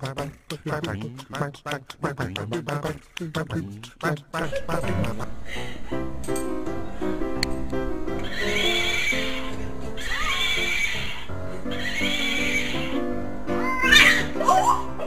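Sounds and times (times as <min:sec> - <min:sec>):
background music: 0:04.4 - 0:15.0
horse whinnies: 0:08.2 - 0:13.0.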